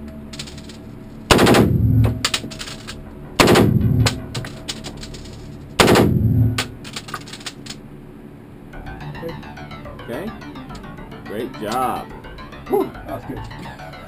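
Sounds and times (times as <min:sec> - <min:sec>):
single gunshots: 0:01.3 - 0:02.2, 0:03.4 - 0:04.2, 0:05.8 - 0:06.7.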